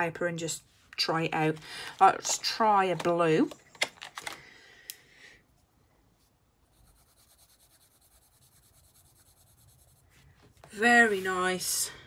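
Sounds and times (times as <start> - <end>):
pencil scratching on paper: 6.6 - 10.3.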